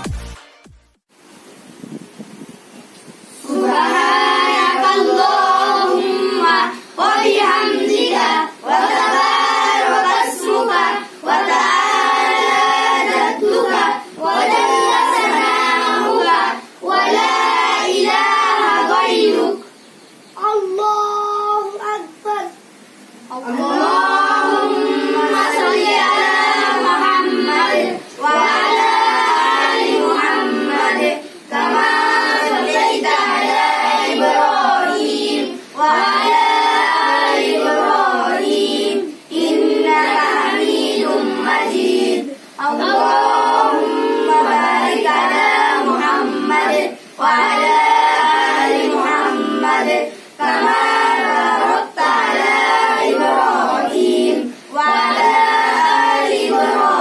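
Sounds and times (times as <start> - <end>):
boys chanting prayer in unison: 3.2 - 57.0.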